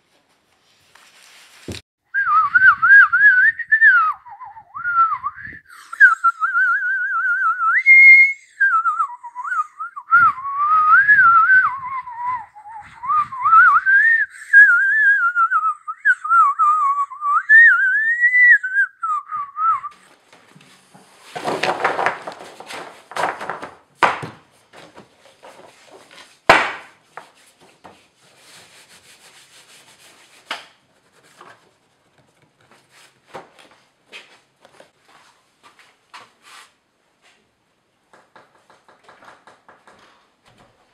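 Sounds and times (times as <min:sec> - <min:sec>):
person whistling a tune: 0:02.1 - 0:20.1
boards knocking and rustling: 0:20.2 - 0:28.2, 0:38.1 - 0:40.9.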